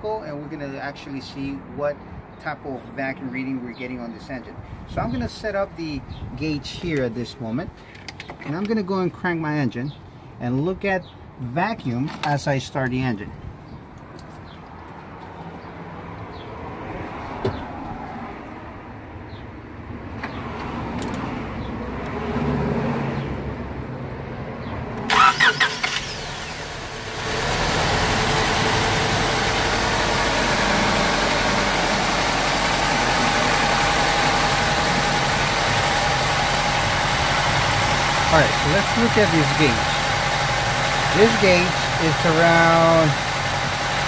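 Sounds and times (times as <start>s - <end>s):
car starter cranking: 25.1s - 26.9s
car engine idling rough: 26.1s - 44.0s.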